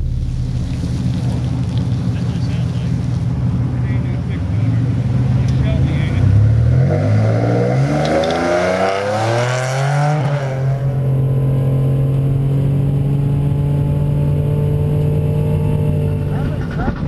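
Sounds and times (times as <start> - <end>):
steady engine drone: 0.0 - 8.4
car engine accelerating hard: 0.0 - 17.0.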